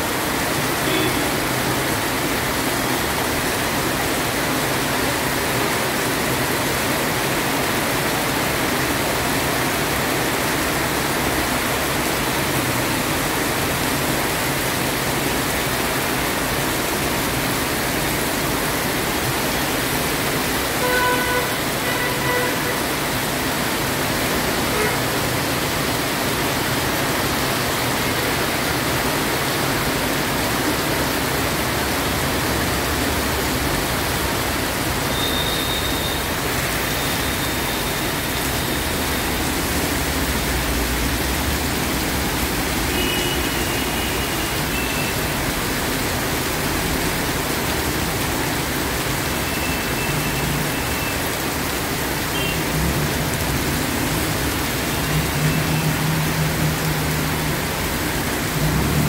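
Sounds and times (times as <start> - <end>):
heavy rain on a street: 0.0 - 59.0
vehicle horn toots: 20.8 - 22.9, 35.1 - 36.2.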